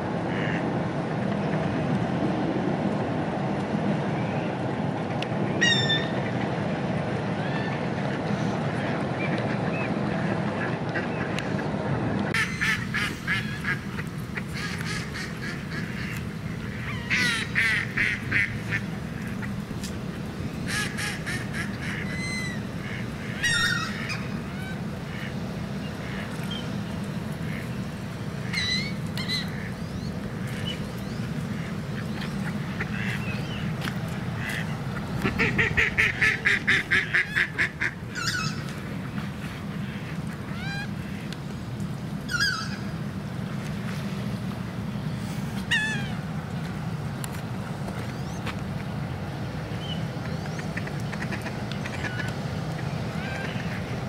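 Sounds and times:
ducks quacking: 0.3 - 0.6, 12.3 - 41.4, 50.2 - 54.0
steady low rumble: 8.2 - 54.0.

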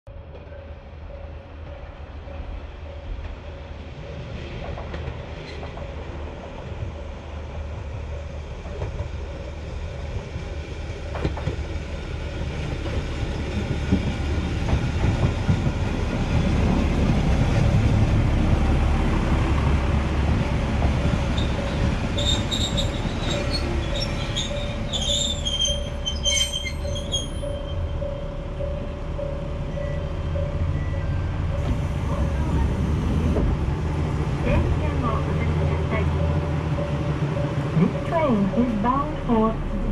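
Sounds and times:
diesel railcar engine: 0.1 - 39.9
train wheels on rails: 0.1 - 39.9
train brakes squealing: 21.3 - 31.7.

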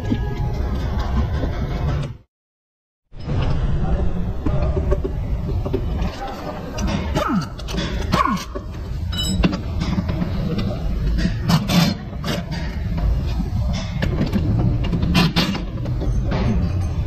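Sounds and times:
workshop rumble: 3.2 - 17.0
metal parts clicking and knocking: 4.9 - 17.0.

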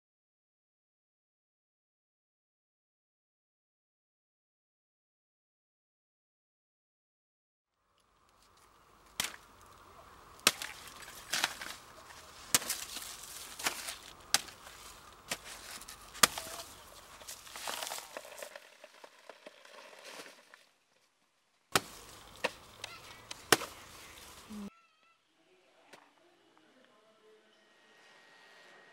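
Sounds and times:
blade chopping plant stems: 9.1 - 9.6, 10.4 - 18.5, 21.7 - 24.5.

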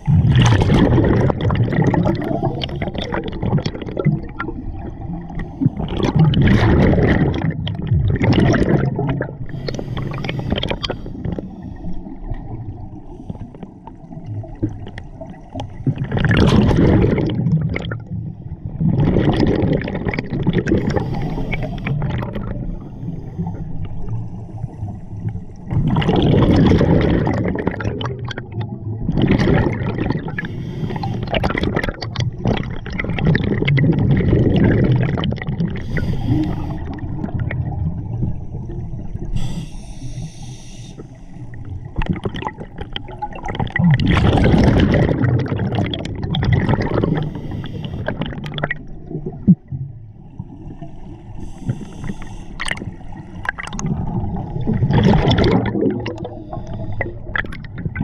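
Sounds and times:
bubbles gurgling: 0.0 - 13.0, 13.8 - 24.5, 25.3 - 39.4, 41.4 - 50.8, 51.6 - 58.0
diver breathing through regulator: 9.4 - 12.2, 20.7 - 23.8, 30.2 - 31.6, 35.7 - 37.2, 38.4 - 41.6, 47.0 - 48.4, 50.4 - 53.3, 56.0 - 57.4.

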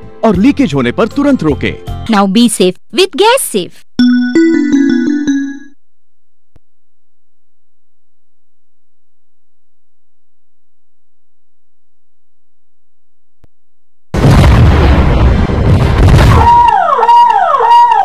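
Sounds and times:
steady electronic tone: 4.0 - 5.7.

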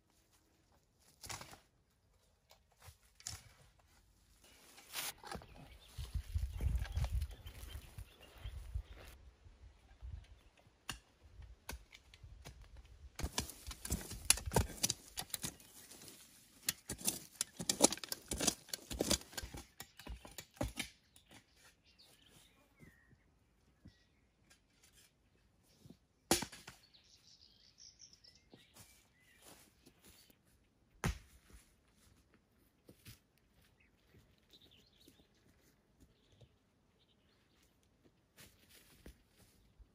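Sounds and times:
faint bird chirps: 5.4 - 9.1, 21.1 - 24.6, 26.8 - 30.4
dry twigs crackling and snapping: 13.2 - 20.9.

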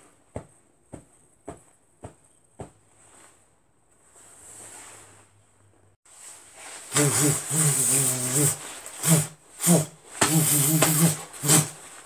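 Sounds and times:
man yelling hoarsely: 6.9 - 11.8.

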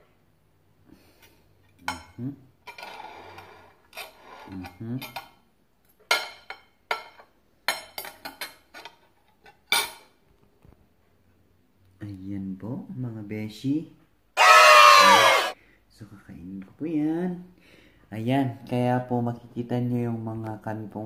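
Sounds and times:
cutlery clinking and scraping on plate: 1.2 - 5.4, 6.0 - 10.2.

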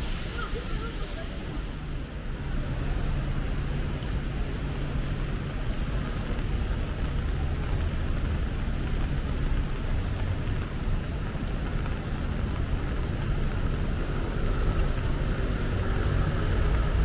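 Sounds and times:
city traffic rumble: 0.0 - 17.0.

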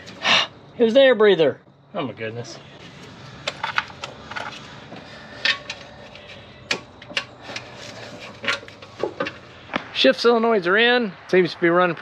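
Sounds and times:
tools clicking and knocking: 3.4 - 9.4.

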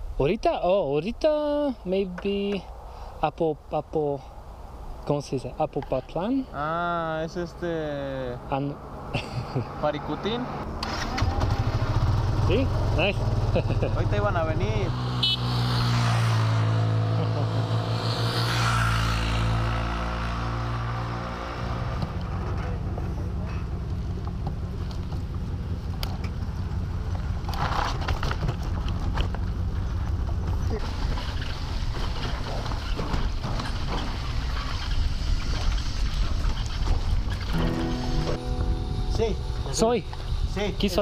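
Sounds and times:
wind and road noise: 0.0 - 41.0
motorcycle engine running: 10.9 - 18.4, 35.4 - 41.0
hooves on cobbles: 22.2 - 34.6
bicycle rolling over cobbles: 26.2 - 37.6.

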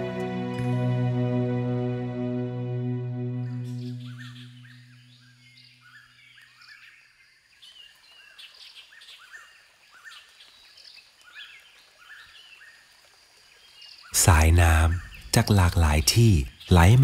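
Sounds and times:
low held music chord: 0.0 - 5.2
forest birds chirping: 2.0 - 17.0.

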